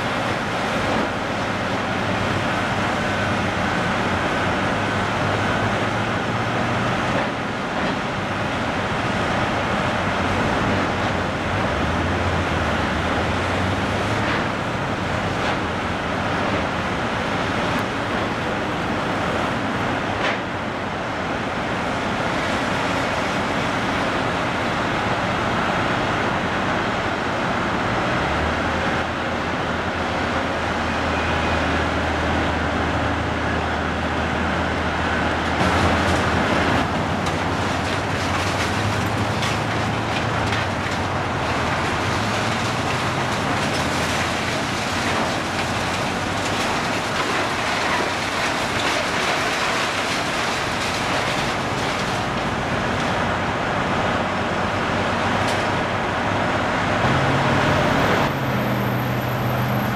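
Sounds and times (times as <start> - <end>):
excavator engine drone: 0.0 - 59.9
debris and metal crunching: 35.4 - 53.6.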